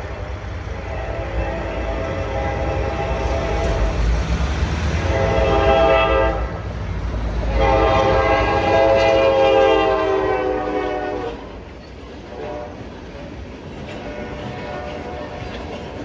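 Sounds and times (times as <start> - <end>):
locomotive air horn blasts: 0.0 - 4.0, 5.0 - 6.6, 7.5 - 11.6, 12.3 - 12.9, 14.0 - 15.5
diesel locomotive rumble: 0.0 - 16.0.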